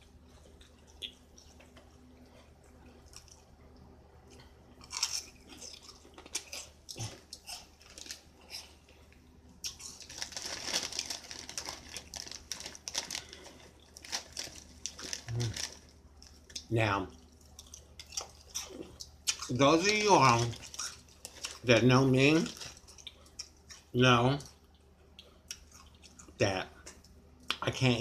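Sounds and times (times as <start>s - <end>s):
crunching and chewing snack: 0.0s - 27.6s
snack bag crackling: 4.8s - 8.8s, 9.6s - 16.7s, 17.3s - 23.9s.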